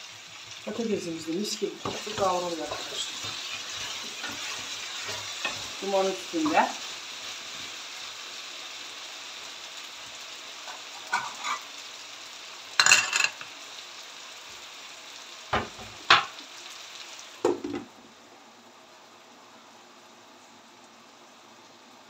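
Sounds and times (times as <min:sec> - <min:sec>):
potatoes sizzling in a frying pan: 0:00.0 - 0:22.0
spatula clattering on pans: 0:10.7 - 0:11.7, 0:12.8 - 0:13.5.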